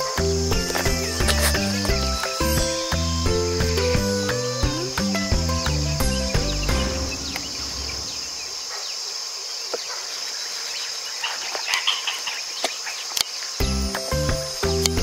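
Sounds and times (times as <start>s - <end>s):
background music with bass notes: 0.0s - 8.2s, 13.6s - 15.0s
high-pitched insect drone: 0.0s - 8.7s, 11.1s - 15.0s.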